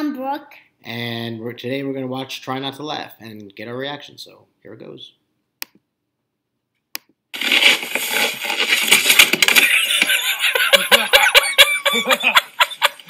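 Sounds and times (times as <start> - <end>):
noisy clatter of clicks and knocks: 7.4 - 10.3.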